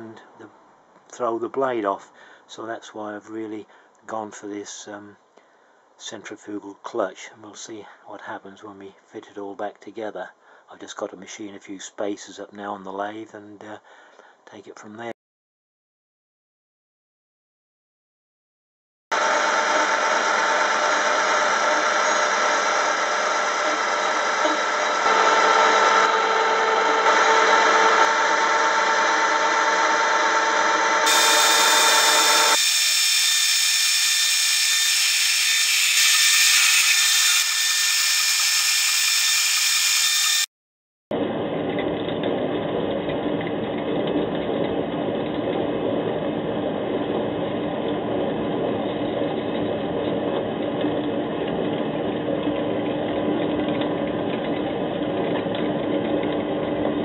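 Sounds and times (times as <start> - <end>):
drill boring into metal: 19.2 - 40.5
metal lathe running: 19.2 - 40.5.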